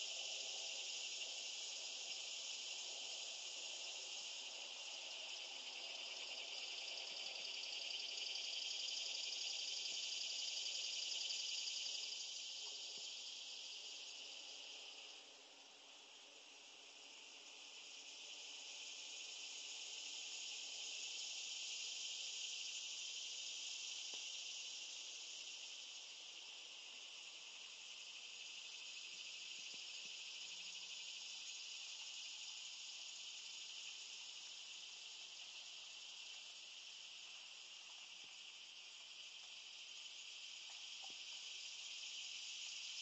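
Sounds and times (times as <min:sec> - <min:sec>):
insects chirring: 0:00.0 - 0:43.0.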